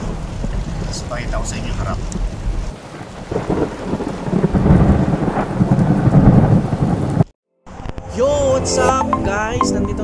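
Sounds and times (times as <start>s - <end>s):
rain on a car: 0.0s - 7.3s.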